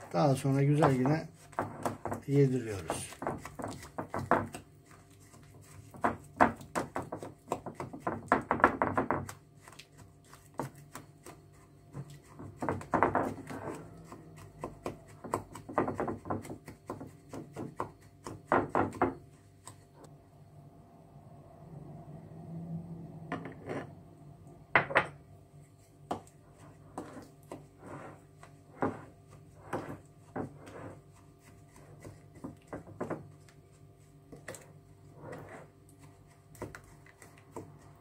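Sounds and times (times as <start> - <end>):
wooden spoon scraping glass bowl: 11.9 - 15.6, 25.7 - 32.5, 34.3 - 36.2.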